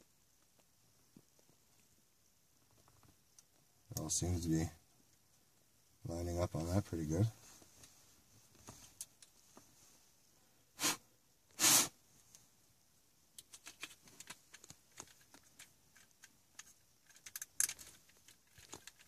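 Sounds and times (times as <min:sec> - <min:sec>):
person sniffing: 0:10.8 - 0:12.0.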